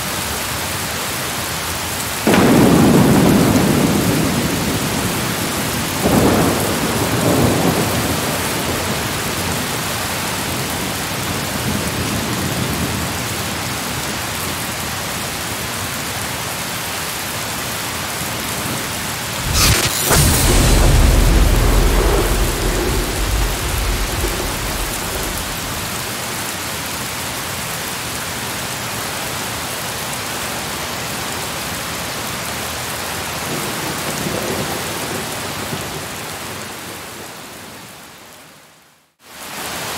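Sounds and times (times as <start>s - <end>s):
steady rain: 0.0s - 39.9s
thunder crack and rumble: 2.3s - 9.6s, 19.4s - 26.4s.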